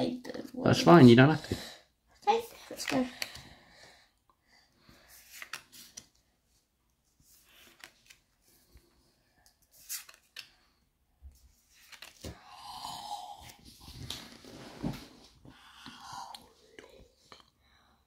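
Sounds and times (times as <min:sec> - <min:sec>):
trading cards sliding and clicking: 0:05.1 - 0:06.1, 0:07.3 - 0:08.8, 0:09.4 - 0:10.7, 0:11.6 - 0:12.4.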